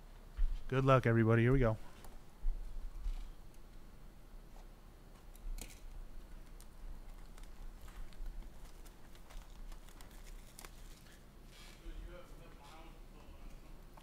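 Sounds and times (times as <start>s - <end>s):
plastic shrink wrap crackling: 6.4s - 11.2s.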